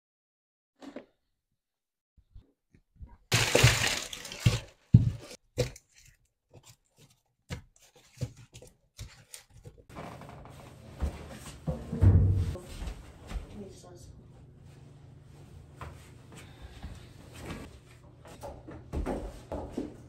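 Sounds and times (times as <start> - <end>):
knocks and crunchy handling: 3.3 - 9.7.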